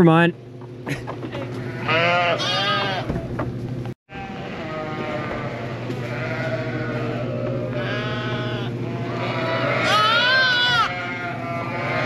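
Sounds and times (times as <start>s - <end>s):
steady low hum: 0.0s - 12.0s
lambs bleating: 1.6s - 3.2s, 4.1s - 12.0s.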